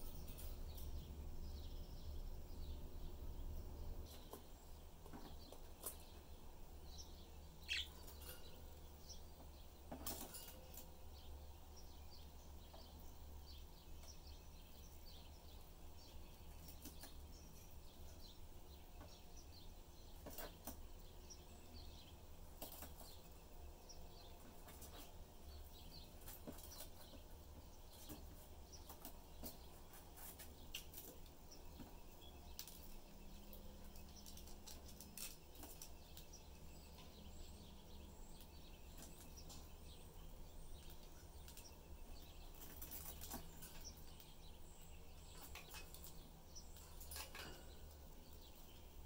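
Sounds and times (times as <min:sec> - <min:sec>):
low steady hum: 0:00.0 - 0:49.0
budgerigars chirping: 0:07.6 - 0:08.3.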